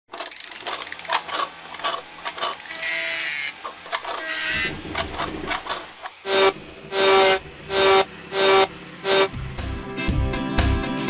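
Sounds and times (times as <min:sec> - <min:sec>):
mechanical clicks and ratcheting: 0:00.1 - 0:06.1
whirring tone: 0:00.2 - 0:09.5.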